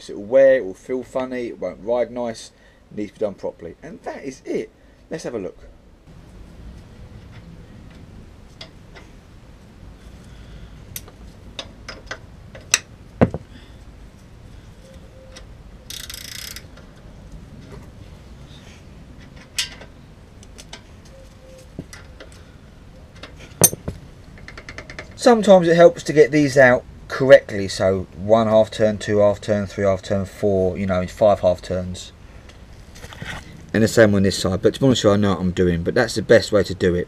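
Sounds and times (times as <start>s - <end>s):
sharp metal knocks: 11.9s - 13.5s, 23.6s - 24.0s
spanners clinking on metal parts: 23.6s - 24.0s.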